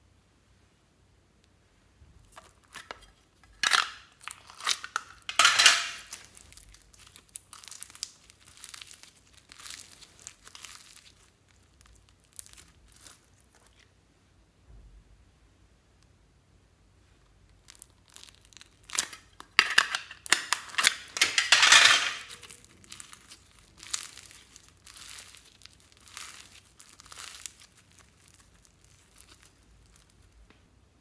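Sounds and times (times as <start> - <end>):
slime crackling: 6.0 - 13.9, 17.5 - 21.2, 22.3 - 30.5.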